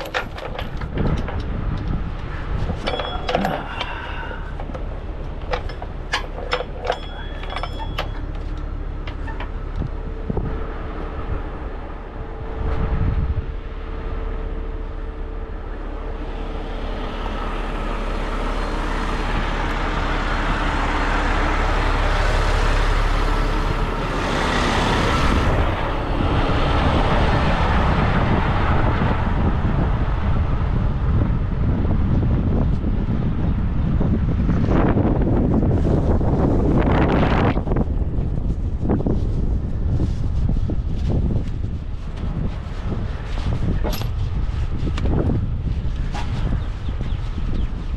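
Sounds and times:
diesel truck idling: 0.0s - 31.2s
wind noise on microphone: 0.0s - 47.9s
metal chain clinking: 2.8s - 9.4s.

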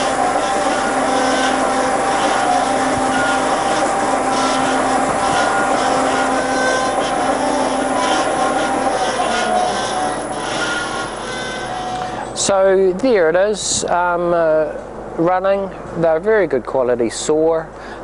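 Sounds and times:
blade drive hum: 0.0s - 12.2s
bandsaw machine drone: 0.0s - 12.5s.

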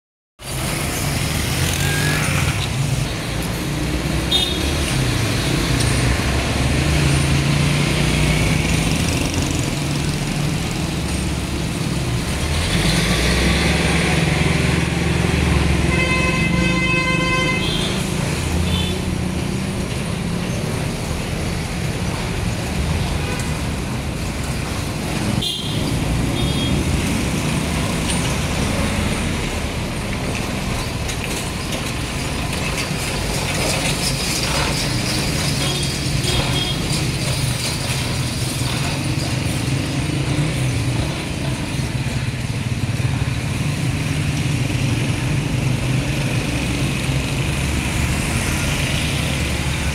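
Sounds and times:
motorcycle and vehicle engines: 0.4s - 49.9s
short high beeps: 1.7s - 2.4s.

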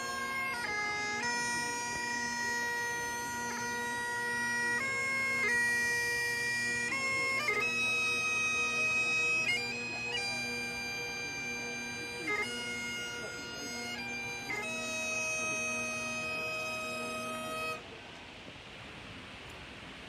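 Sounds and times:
bagpipes playing slow tune: 0.0s - 17.8s.

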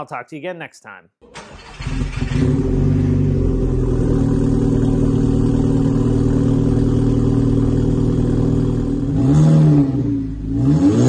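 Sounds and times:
car engine idling: 1.3s - 9.2s.

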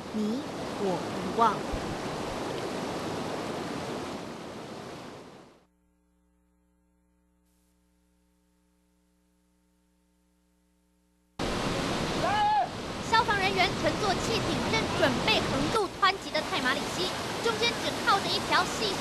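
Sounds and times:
river roaring in flood: 0.0s - 5.5s, 11.4s - 19.0s
faint steady hum: 5.0s - 11.7s.

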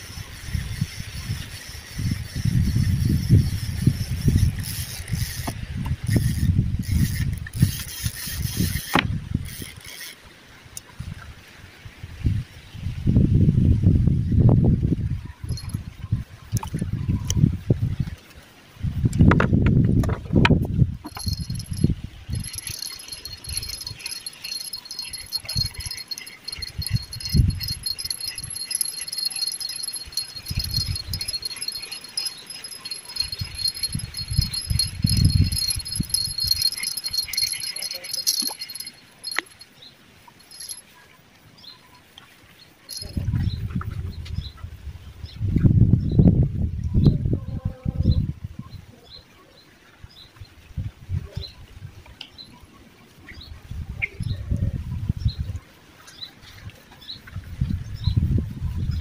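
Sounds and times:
fishing reel gears whirring: 0.4s - 10.2s, 15.5s - 15.8s, 21.0s - 39.6s, 40.4s - 40.8s, 42.9s - 43.2s
insect chorus trilling: 21.1s - 39.6s, 40.4s - 40.8s, 42.9s - 43.2s.

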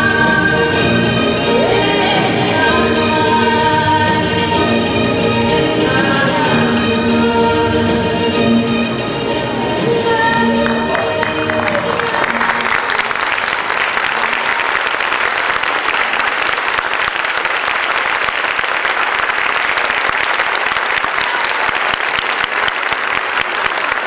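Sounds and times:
audience applauding: 9.4s - 24.0s.

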